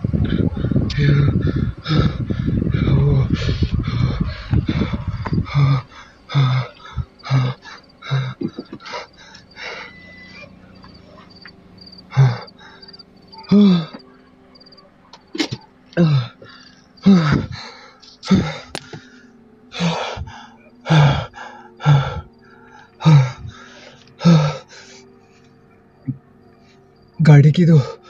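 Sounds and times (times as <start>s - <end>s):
man panting and gasping: 0.2s - 10.0s, 12.1s - 14.0s, 16.0s - 25.1s
faint high-pitched beeping: 3.8s - 18.6s.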